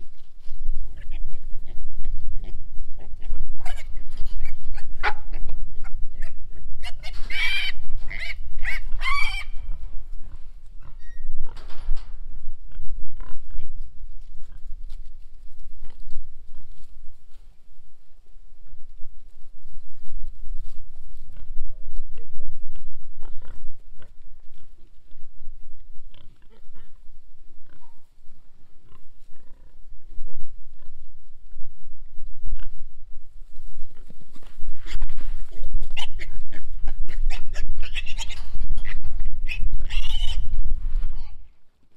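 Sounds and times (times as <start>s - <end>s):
piglets squealing: 3.2s - 5.4s, 6.1s - 9.8s, 36.0s - 40.5s
pigs grunting: 26.1s - 27.0s.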